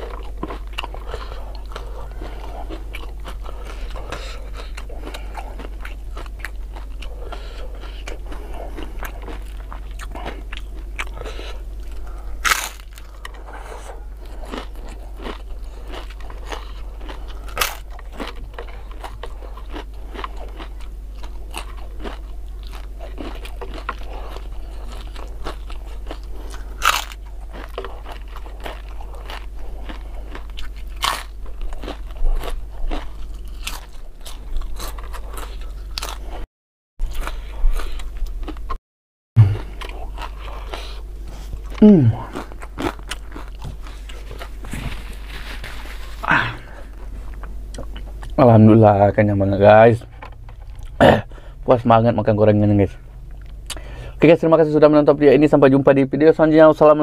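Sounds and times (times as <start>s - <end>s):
crunching and chewing: 0.0s - 38.8s, 39.4s - 51.9s, 52.9s - 55.6s
steady low hum: 0.0s - 38.8s, 39.4s - 57.0s.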